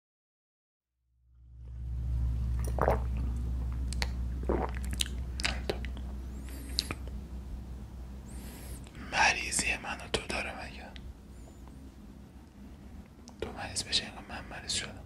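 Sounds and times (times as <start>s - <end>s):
steady low hum: 1.2s - 15.0s
sips gulps and swallows: 2.6s - 7.2s.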